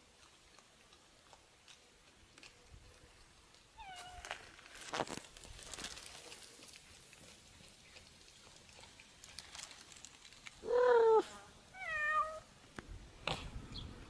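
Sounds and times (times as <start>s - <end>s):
cat meowing: 11.8s - 12.4s.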